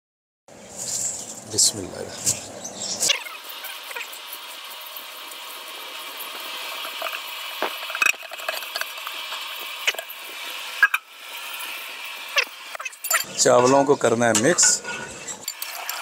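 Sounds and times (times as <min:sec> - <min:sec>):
rice grains pouring: 0:03.3 - 0:12.7.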